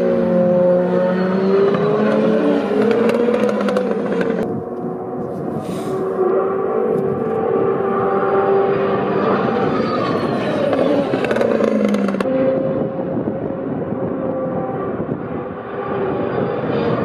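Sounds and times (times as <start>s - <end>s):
racing cars passing: 0.0s - 17.0s.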